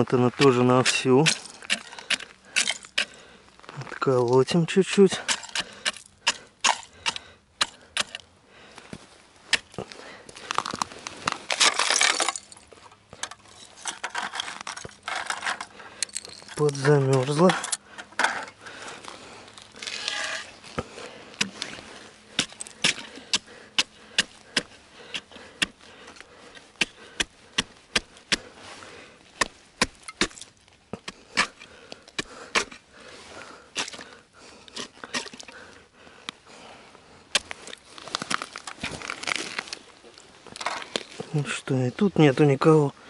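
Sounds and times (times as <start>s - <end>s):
ice chisel striking ice: 0.4s - 3.1s, 5.1s - 8.3s, 11.5s - 12.5s, 22.4s - 25.8s, 26.8s - 28.5s, 29.4s - 31.6s.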